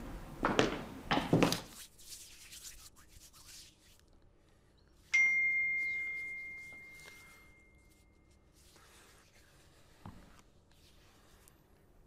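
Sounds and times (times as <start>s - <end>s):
bell-like chime ringing: 5.1s - 8.3s.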